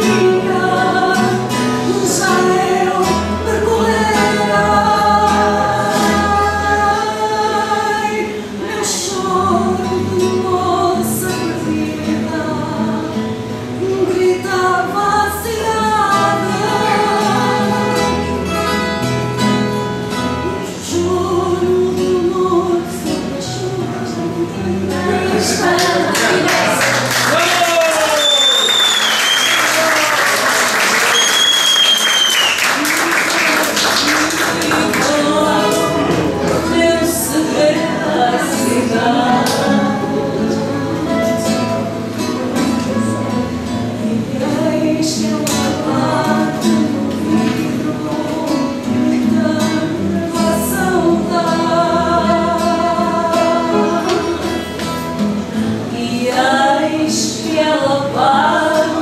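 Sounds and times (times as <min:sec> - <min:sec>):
women singing: 0:00.0 - 0:18.6, 0:20.5 - 0:27.2, 0:32.4 - 0:59.0
guitar accompaniment: 0:00.0 - 0:59.0
people clapping: 0:25.5 - 0:36.9, 0:39.4 - 0:39.8
high whoops: 0:27.3 - 0:33.0.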